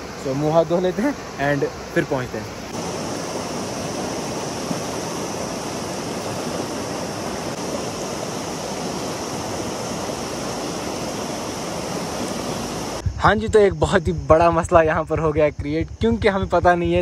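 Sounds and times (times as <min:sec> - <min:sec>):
river water rushing: 0:00.0 - 0:13.1.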